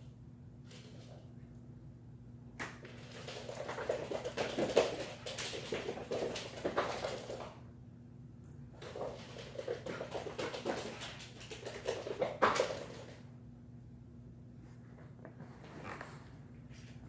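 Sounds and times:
dogs scuffling on couch: 14.9 - 17.0.

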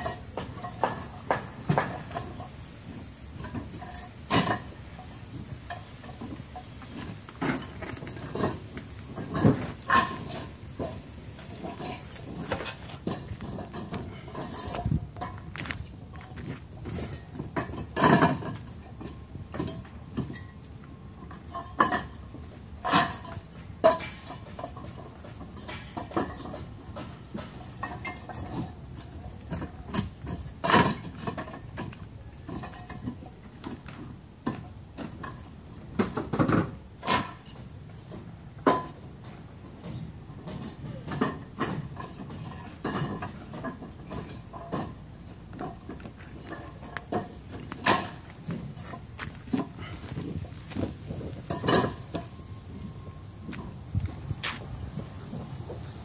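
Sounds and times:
clay bricks clacking together: 21.3 - 52.4.

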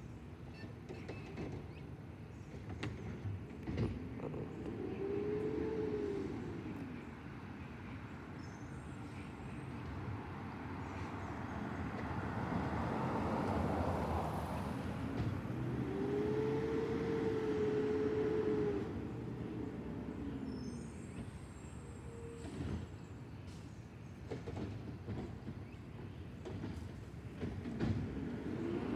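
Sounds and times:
garbage truck engine rumble: 11.7 - 23.6.

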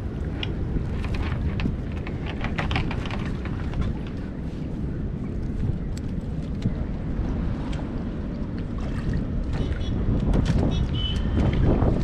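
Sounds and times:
water lapping at boat: 0.0 - 12.0
wind rumbling on microphone: 0.0 - 12.0.

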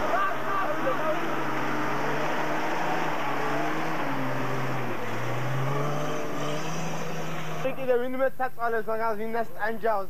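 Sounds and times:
vehicle engine running under load: 0.0 - 7.7.

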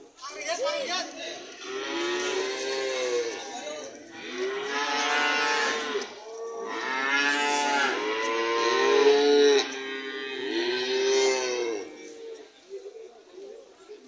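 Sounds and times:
cattle mooing: 4.2 - 12.0.

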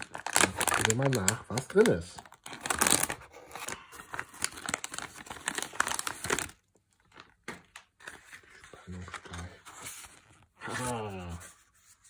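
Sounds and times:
foil pouch crinkling and tearing: 0.0 - 9.3.

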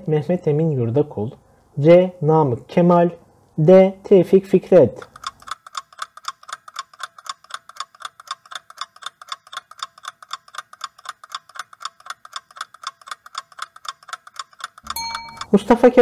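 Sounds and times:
clock ticking rapidly: 5.0 - 16.0.

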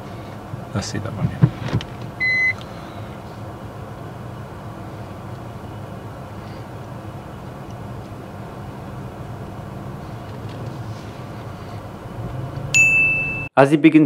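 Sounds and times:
car engine humming inside cabin: 0.0 - 13.5
short high-pitched beep: 12.8 - 13.5.

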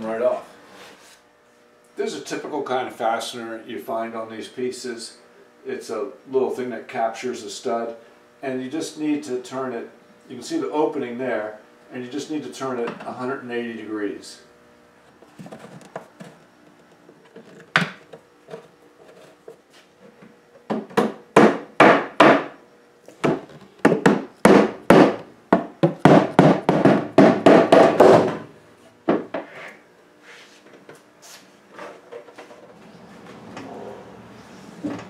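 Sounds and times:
hammer knocking on wooden desk: 23.2 - 28.4.

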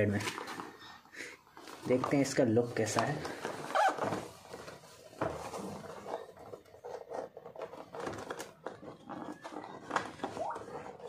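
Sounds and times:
cardboard rubbing and scraping: 3.0 - 11.0.

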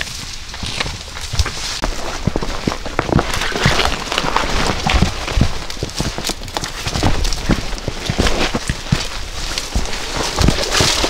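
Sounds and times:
branches scraping against clothing: 0.0 - 11.0
footsteps crunching through undergrowth: 0.0 - 11.0
twigs snapping: 2.8 - 11.0.

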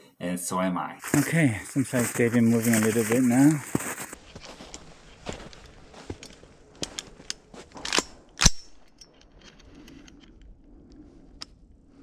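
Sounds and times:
footsteps crunching on snow: 1.0 - 7.8
rifle metallic clack: 6.2 - 9.3.

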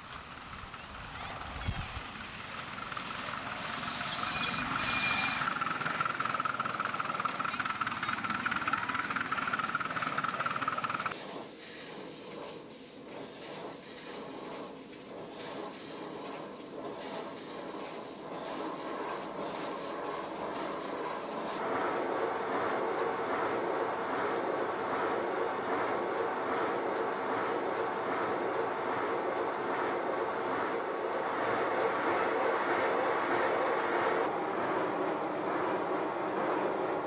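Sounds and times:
model steam engine beats: 2.0 - 37.0
steam locomotive hissing: 2.0 - 37.0.

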